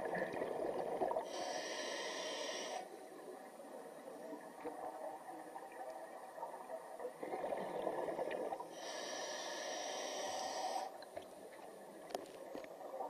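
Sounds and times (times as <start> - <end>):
exhaled air bubbling underwater: 0.0 - 13.0
air hissing through regulator: 1.3 - 2.8, 8.8 - 10.9.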